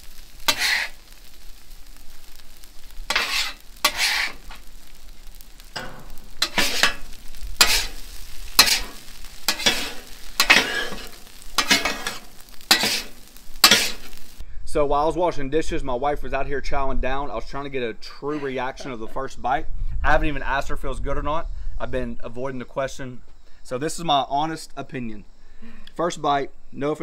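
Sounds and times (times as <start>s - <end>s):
spatula scraping griddle: 0.0s - 1.5s, 2.3s - 14.4s
rice sizzling: 0.0s - 14.4s.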